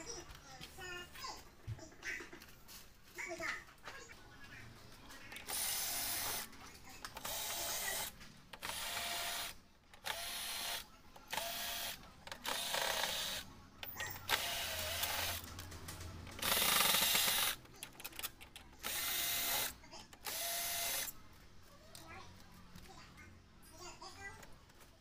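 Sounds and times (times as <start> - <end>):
cordless drill motor whine: 5.5 - 6.4, 7.2 - 13.4, 14.3 - 15.4, 16.4 - 17.6, 18.8 - 21.1.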